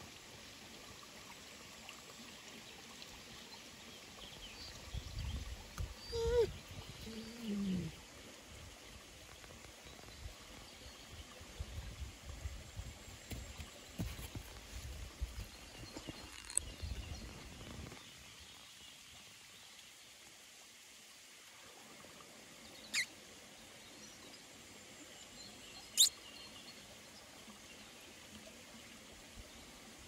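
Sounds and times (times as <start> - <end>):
small animal chirps: 22.9 - 23.1.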